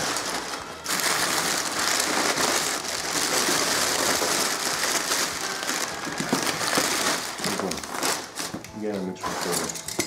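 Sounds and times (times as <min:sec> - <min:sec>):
paper and bubble wrap rustling: 0:00.0 - 0:10.0.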